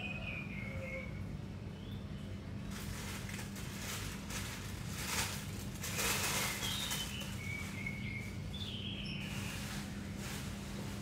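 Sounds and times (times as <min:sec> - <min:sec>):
birds chirping: 0:00.0 - 0:02.7, 0:06.0 - 0:10.2
steady low hum: 0:00.0 - 0:11.0.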